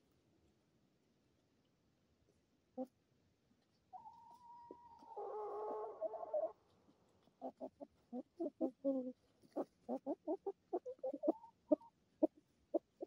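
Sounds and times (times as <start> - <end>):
chickens clucking: 3.9 - 6.6, 7.2 - 13.0
chicken drawn-out call: 4.0 - 6.6.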